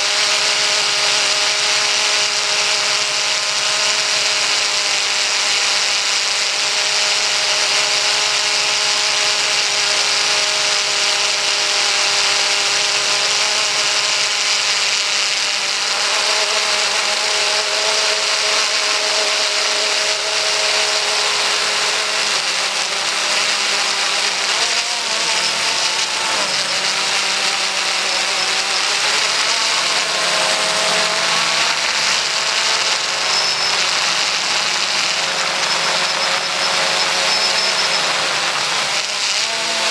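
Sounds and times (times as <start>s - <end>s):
drone motors whining: 0.0s - 39.9s
hiss: 25.0s - 39.9s.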